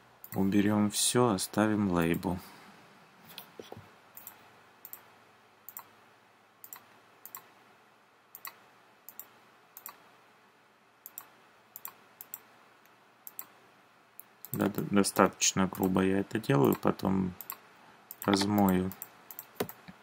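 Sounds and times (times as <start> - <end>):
faint room hiss: 0.0 - 20.0
computer mouse clicking: 3.3 - 5.1, 5.7 - 5.9, 6.6 - 7.5, 8.3 - 10.0, 11.0 - 12.5, 13.2 - 13.6, 14.2 - 14.8, 17.4 - 20.0.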